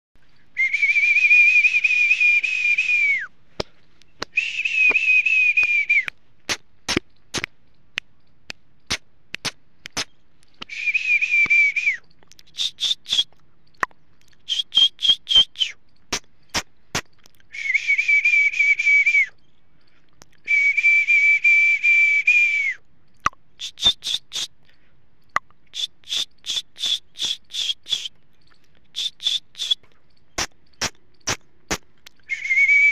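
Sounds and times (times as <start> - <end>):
high-pitched whistling: 0.6 - 3.3, 4.4 - 6.1, 10.7 - 12.0, 14.5 - 15.8, 17.5 - 19.4, 20.5 - 22.8, 29.0 - 29.8, 32.3 - 32.9
sharp clicks: 5.6 - 10.7, 11.4 - 17.5, 23.1 - 32.3
short higher chirps: 10.7 - 15.8, 25.7 - 28.2, 28.9 - 29.8.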